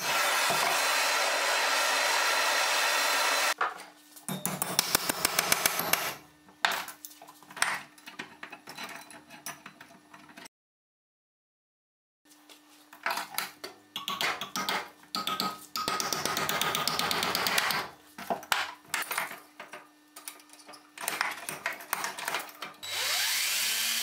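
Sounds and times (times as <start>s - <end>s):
power tool motor running: 0.0s - 3.6s, 22.8s - 24.0s.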